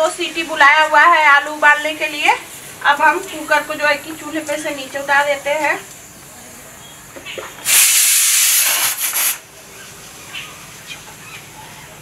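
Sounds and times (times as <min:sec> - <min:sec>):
pressure cooker steam hiss: 0:07.6 - 0:09.6.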